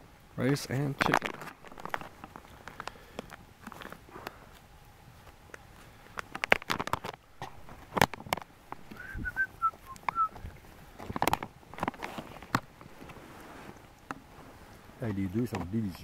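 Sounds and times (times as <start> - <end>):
plastic pouch crinkling: 1.0 - 4.0, 6.3 - 8.5
whistle-like chirps: 9.0 - 10.4.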